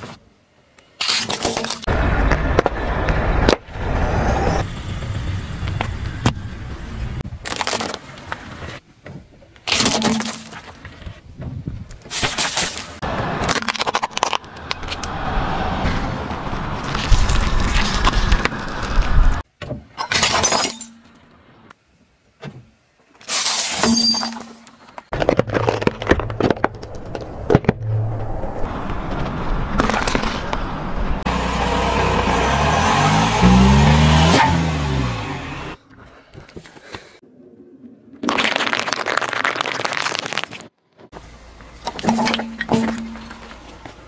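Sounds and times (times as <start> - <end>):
tomatoes crackling and popping: 7.3 - 8.0, 13.4 - 15.1, 25.0 - 27.7, 38.2 - 40.7
glass shattering with ringing clink: 23.8 - 24.6.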